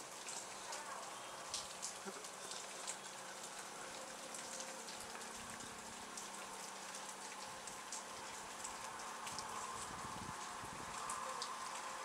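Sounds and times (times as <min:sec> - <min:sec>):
raindrop ticks close by: 0:00.0 - 0:12.0
steady rain: 0:00.0 - 0:12.0.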